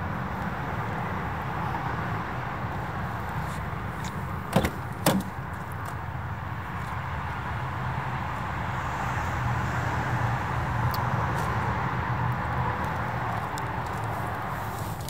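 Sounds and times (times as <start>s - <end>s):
car door latch knocks: 4.5s - 5.4s.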